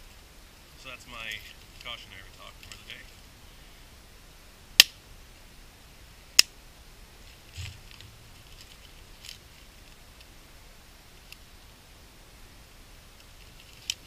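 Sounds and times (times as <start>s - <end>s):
bark crinkling: 7.2s - 9.7s.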